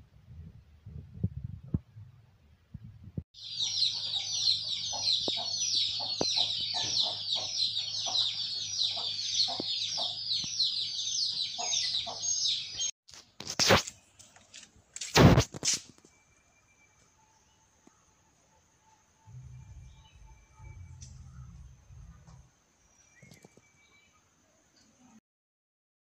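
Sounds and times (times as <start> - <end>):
many birds chirping: 3.4 - 12.9, 19.3 - 24.9
sharp knock: 15.1 - 15.5.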